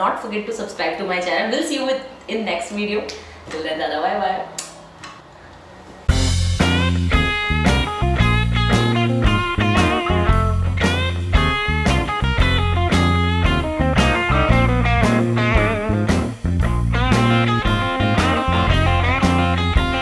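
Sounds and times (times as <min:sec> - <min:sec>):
guitar melody over bass and beat: 0:06.1 - 0:20.0.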